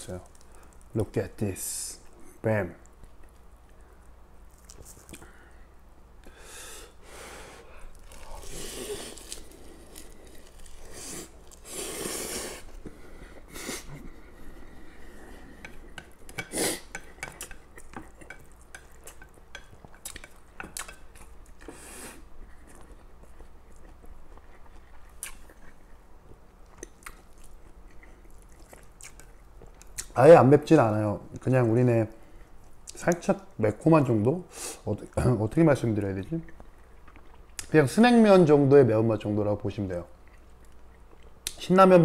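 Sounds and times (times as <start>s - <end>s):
chewing and mouth sounds: 12.6s - 21.8s, 22.4s - 30.2s, 36.4s - 37.7s, 40.2s - 41.6s.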